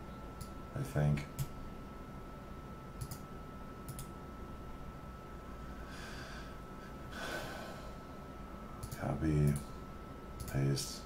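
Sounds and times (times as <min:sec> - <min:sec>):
mouse click: 0:03.9 - 0:04.1
person breathing: 0:05.6 - 0:08.3.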